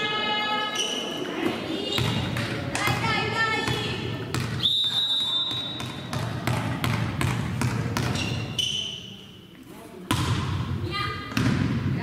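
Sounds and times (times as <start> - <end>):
sports hall hum: 0.0 - 12.0
volleyball bouncing on floor: 1.4 - 8.5, 10.1 - 12.0
referee's whistle blast: 4.6 - 5.9.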